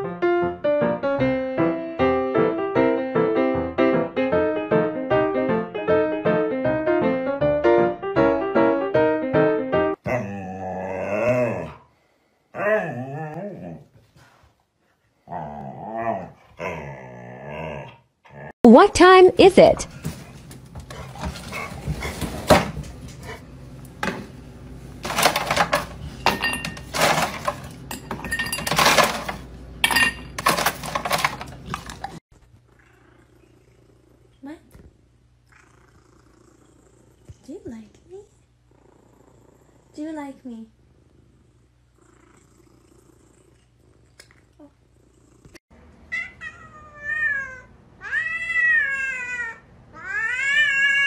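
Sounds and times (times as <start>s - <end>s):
dishes clattering: 25.0s - 32.2s
cat meowing: 46.1s - 51.0s.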